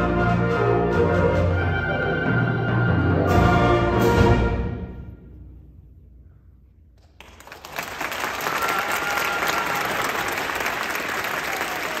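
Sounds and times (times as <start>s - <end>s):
audience applauding: 7.0s - 12.0s.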